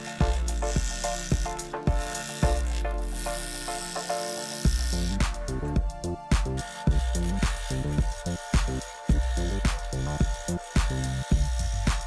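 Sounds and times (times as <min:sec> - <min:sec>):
background music with beat: 0:00.0 - 0:12.0.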